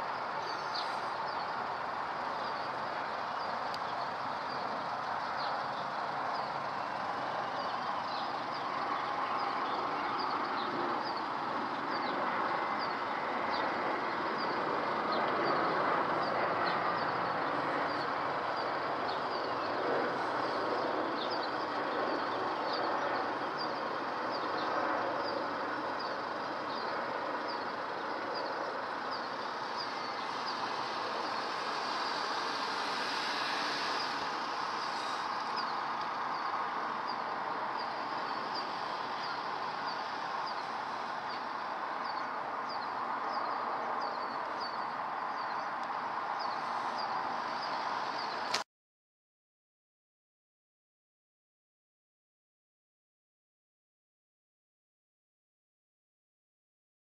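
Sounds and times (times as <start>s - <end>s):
distant jet engine rumble: 0.0s - 48.6s
small bird chirping: 0.4s - 1.6s.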